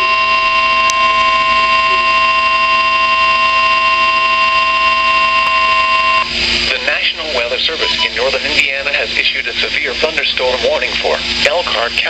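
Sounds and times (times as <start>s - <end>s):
steady alarm beep: 0.0s - 8.4s.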